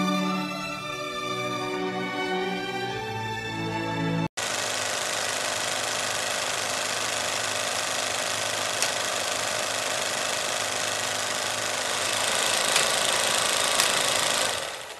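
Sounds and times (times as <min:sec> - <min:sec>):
film projector whirring: 0:04.4 - 0:14.9
sharp clicks: 0:08.3 - 0:09.2, 0:12.0 - 0:14.7.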